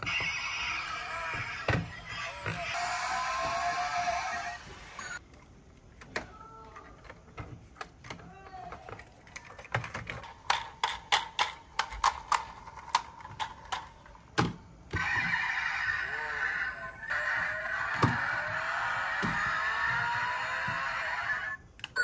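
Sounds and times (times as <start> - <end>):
toy cars clicking and knocking: 6.0 - 15.7.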